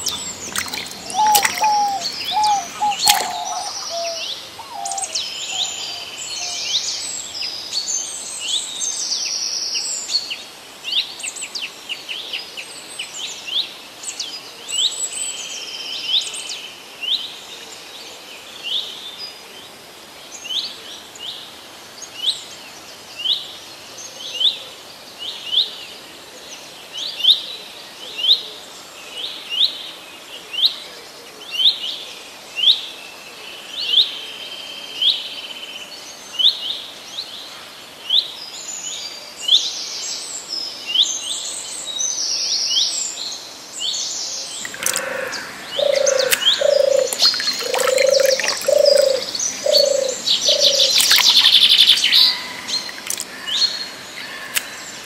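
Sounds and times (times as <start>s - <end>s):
dove cooing: 0.0s - 5.1s, 44.7s - 52.8s
bird chirping: 0.0s - 6.6s, 44.5s - 55.0s.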